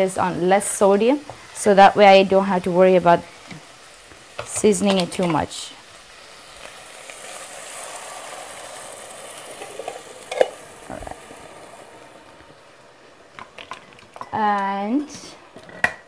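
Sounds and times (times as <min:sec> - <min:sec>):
broth sizzling in hot pot: 0:00.0 - 0:16.0.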